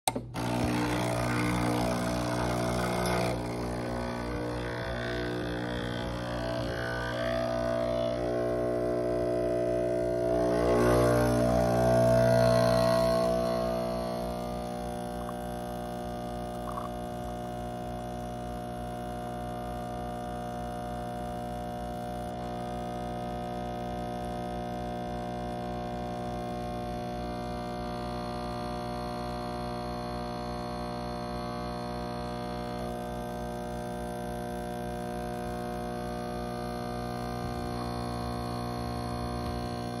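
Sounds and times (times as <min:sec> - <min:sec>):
espresso machine pump humming: 0:00.1 - 0:20.1, 0:32.4 - 0:40.0.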